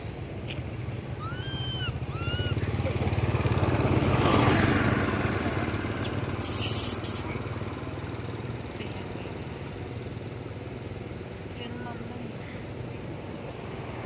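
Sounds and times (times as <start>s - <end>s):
motorcycle engine running: 0.2s - 11.6s
monkey squealing: 1.2s - 2.6s, 6.4s - 7.3s
sudden loud hissing: 6.4s - 7.2s.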